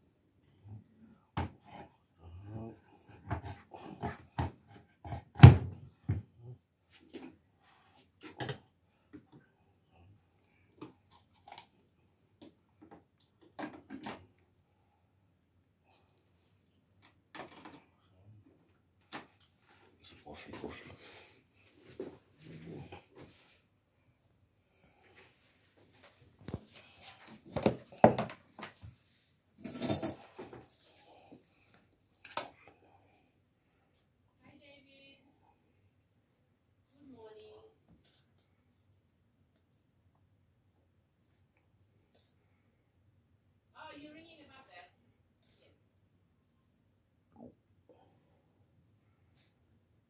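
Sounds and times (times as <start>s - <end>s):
kitchen items knocking and clattering: 27.3s - 28.7s.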